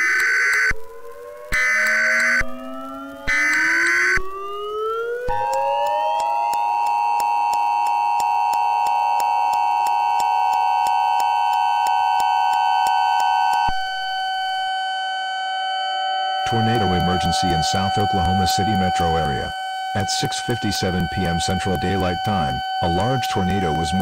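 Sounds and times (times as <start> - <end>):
screeching digital data burst: 0.0 - 4.7, 16.4 - 24.0
siren-like rising tone: 0.0 - 24.0
two-tone attention signal: 1.5 - 4.2, 16.4 - 24.0
steady low tone: 16.4 - 24.0.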